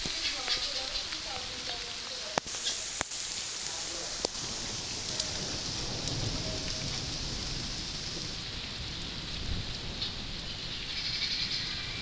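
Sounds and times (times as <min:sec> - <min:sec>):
steady rain on trees: 0:00.0 - 0:12.0.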